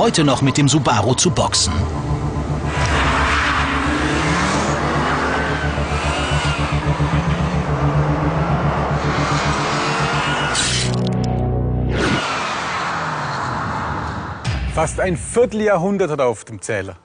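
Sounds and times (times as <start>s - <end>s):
car engines revving hard: 2.2s - 11.2s, 11.9s - 14.4s.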